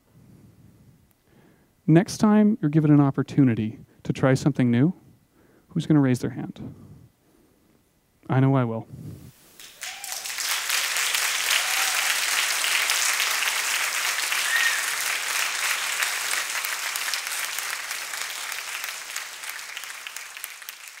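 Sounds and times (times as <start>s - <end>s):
audience applause: 9.6s - 21.0s.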